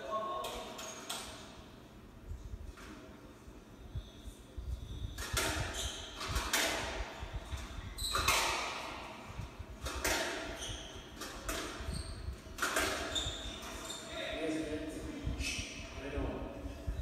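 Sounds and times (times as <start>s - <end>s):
shoes squeaking on wooden floor: 10.4s - 14.4s.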